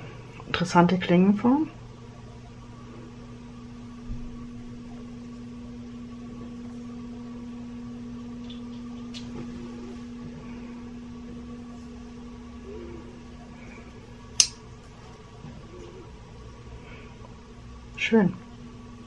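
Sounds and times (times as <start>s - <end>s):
low electrical hum: 0.0s - 19.0s
folding knife blade click: 14.4s - 14.6s.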